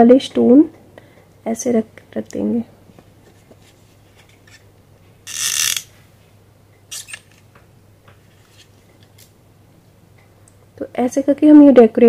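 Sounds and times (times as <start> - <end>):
sequined trim rasping rattle: 5.3 - 5.9.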